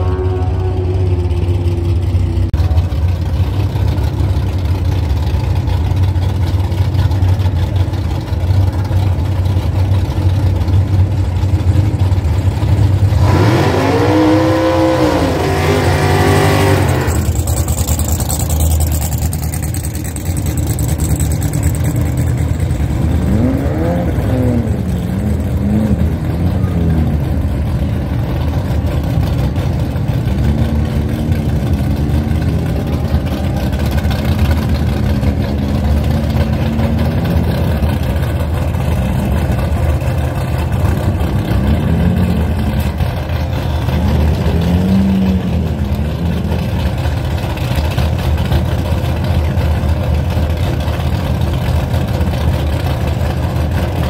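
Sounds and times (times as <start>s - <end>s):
race car engines idling: 0.0s - 54.0s
race car engine revving: 11.8s - 54.0s.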